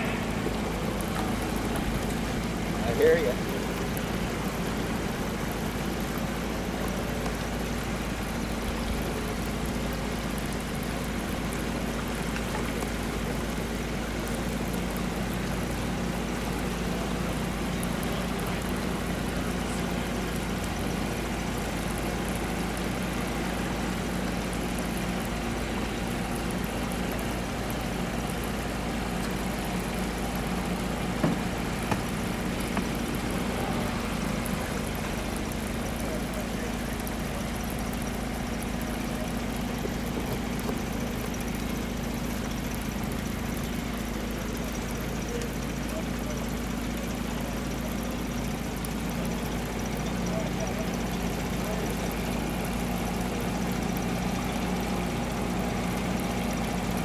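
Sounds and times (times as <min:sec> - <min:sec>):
outboard motor running: 0:00.0 - 0:57.0
sharp knocks: 0:31.1 - 0:33.3.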